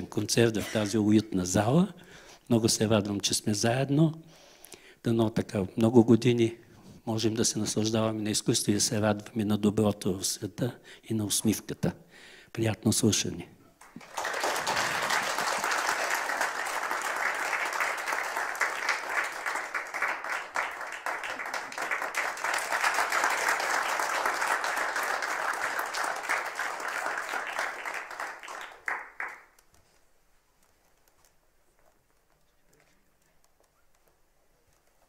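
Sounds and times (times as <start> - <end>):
audience applauding: 13.8 - 29.7.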